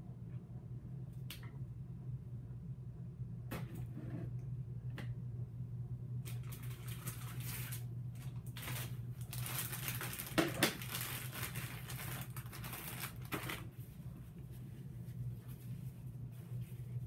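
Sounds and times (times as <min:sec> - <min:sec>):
hands kneading modelling clay: 0:13.6 - 0:17.0.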